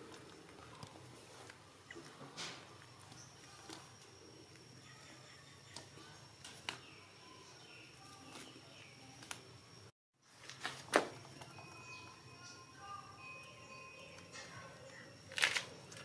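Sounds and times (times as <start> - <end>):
faint high chirps: 2.7 - 9.9, 11.1 - 16.0.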